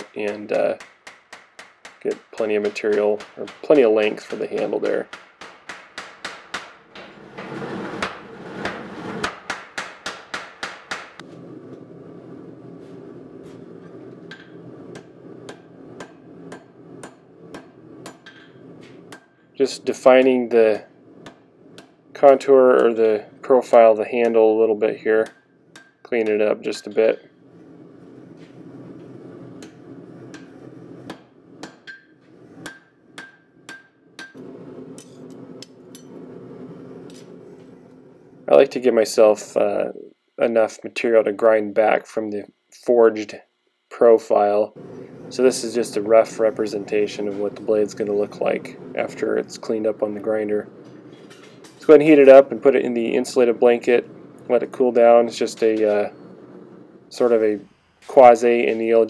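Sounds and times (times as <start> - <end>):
hand hammer striking steel on anvil: 0.0 - 7.1, 8.0 - 11.2, 14.3 - 19.4, 21.2 - 23.0, 25.2 - 27.3, 29.6 - 34.4
power hammer striking hot steel: 0.0 - 11.3, 13.8 - 20.6, 21.2 - 27.4, 28.6 - 37.9
steady low hum: 0.0 - 59.0.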